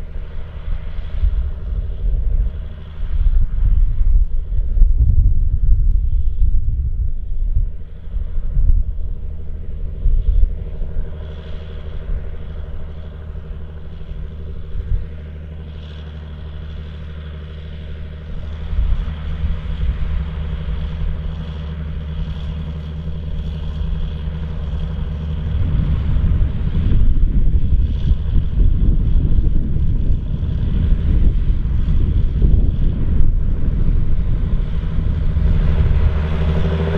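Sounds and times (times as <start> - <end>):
tractor diesel engine droning: 7.4 - 36.9.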